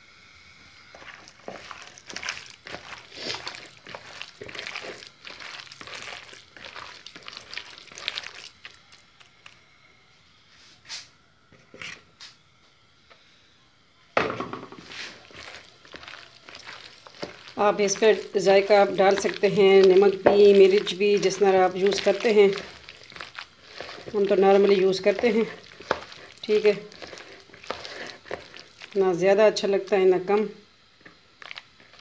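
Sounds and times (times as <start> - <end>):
hand squishing wet batter: 1.0 - 9.6, 14.8 - 29.2, 31.0 - 32.0.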